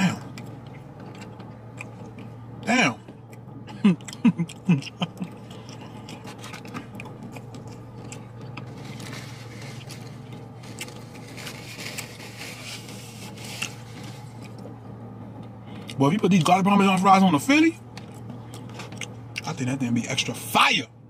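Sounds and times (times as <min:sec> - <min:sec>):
low hum: 0:00.0 - 0:21.0
plastic fork scraping container: 0:08.6 - 0:14.5.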